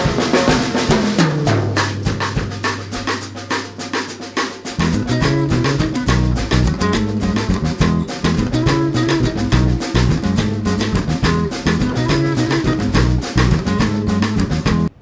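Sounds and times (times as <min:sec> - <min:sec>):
drum kit beat: 0:00.0 - 0:15.0
bass line: 0:04.8 - 0:15.0.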